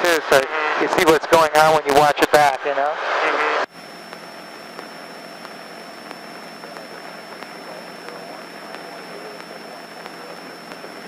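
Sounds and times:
high-pitched whine: 0.0s - 11.0s
faint regular ticks: 3.7s - 11.0s.

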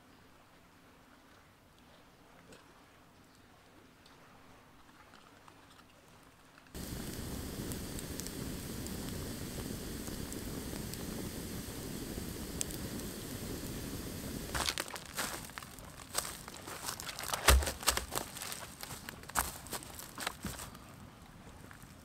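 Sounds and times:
campfire crackling and popping: 6.7s - 20.9s
footsteps: 6.8s - 20.9s.

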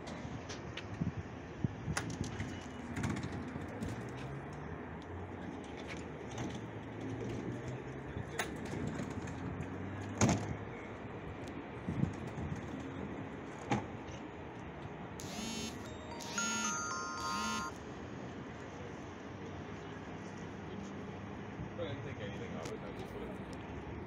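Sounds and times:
electrical hum: 15.2s - 17.8s
electronic door-warning tones: 15.2s - 17.8s.

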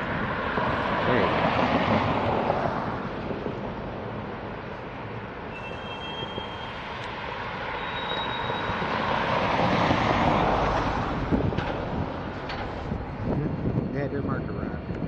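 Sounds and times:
high wheel squeal: 5.4s - 10.4s
freight train rumbling: 7.8s - 15.0s.

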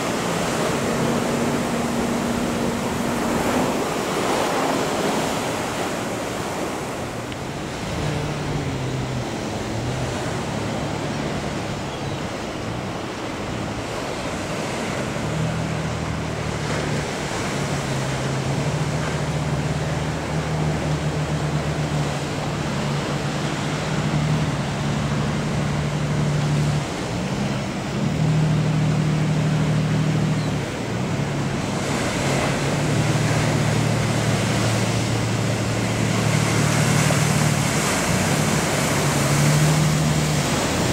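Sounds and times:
surf breaking: 0.0s - 11.8s, 30.8s - 40.9s
boat diesel engine droning: 0.0s - 40.9s.

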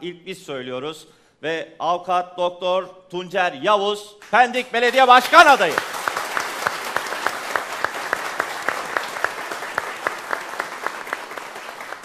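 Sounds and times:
close handclaps: 4.2s - 12.0s
studio audience applauding: 4.9s - 12.0s.

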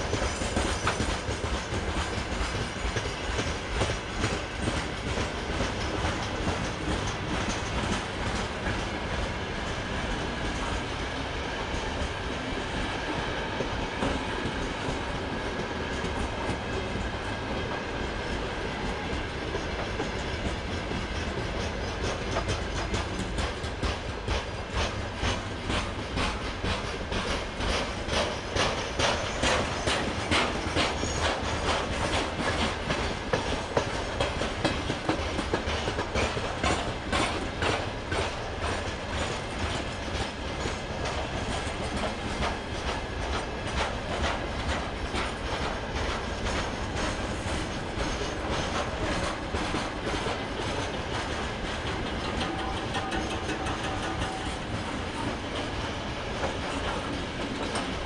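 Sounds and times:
freight train rumbling past: 0.0s - 58.0s
wheels clattering over rail joints: 18.9s - 58.0s.

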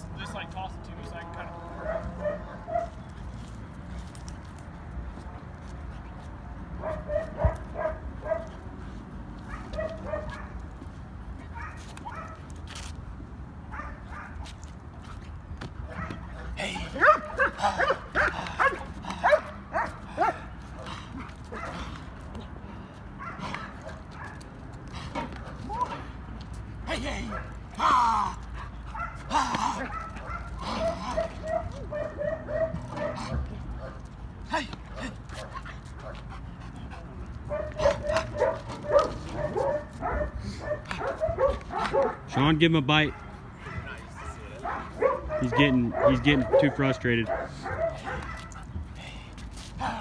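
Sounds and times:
dog barking: 1.8s - 3.0s, 6.8s - 8.5s, 9.5s - 10.6s, 13.7s - 14.4s, 17.0s - 20.4s, 28.9s - 29.2s, 29.8s - 34.0s, 37.5s - 42.2s, 43.1s - 48.6s.

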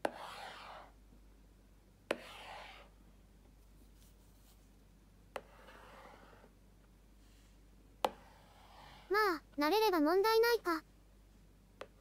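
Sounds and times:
stylus scratchy rub on screen: 0.0s - 0.9s, 2.1s - 2.9s, 5.4s - 6.5s, 8.1s - 9.3s.

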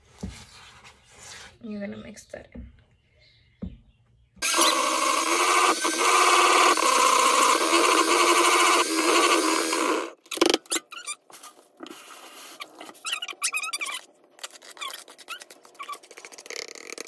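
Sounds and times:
electric hand mixer whipping batter: 4.4s - 10.2s.

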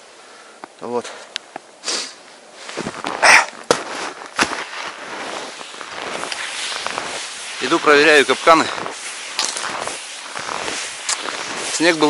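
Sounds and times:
snow crunching: 1.8s - 12.0s
clothing rustling: 2.6s - 12.0s.

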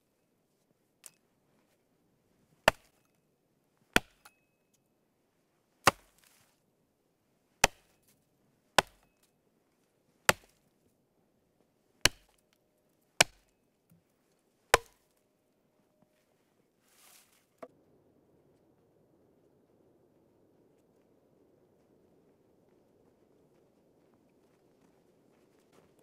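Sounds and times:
axe chopping wood: 2.7s - 3.0s, 3.9s - 4.4s, 5.9s - 6.2s, 7.6s - 8.0s, 8.8s - 9.2s, 10.3s - 10.6s, 12.0s - 12.4s, 13.2s - 13.5s, 14.7s - 15.1s.

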